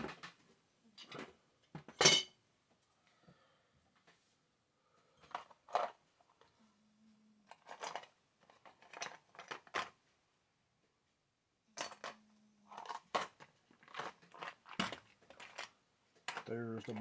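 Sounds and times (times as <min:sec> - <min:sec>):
small metal parts clinking in plastic tub: 0:07.5 - 0:10.0, 0:11.8 - 0:17.0.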